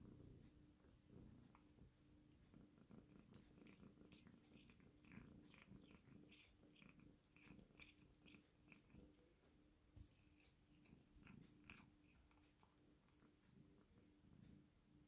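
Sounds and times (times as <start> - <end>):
cat licking and chewing: 0.8 - 14.6.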